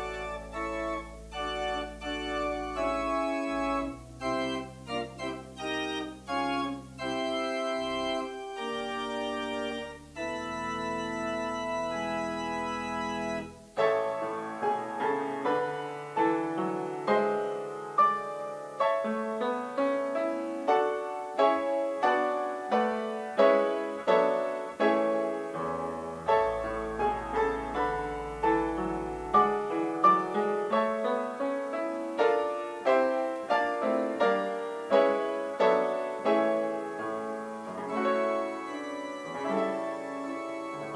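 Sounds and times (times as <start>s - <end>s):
church organ chords: 0.0s - 17.6s, 31.8s - 40.9s
piano playing quick notes: 0.0s - 40.9s.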